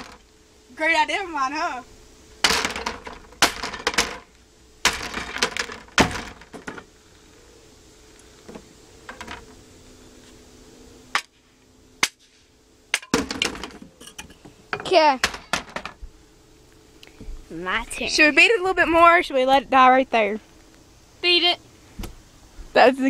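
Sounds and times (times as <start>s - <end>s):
loose panels clattering: 2.4s - 4.3s.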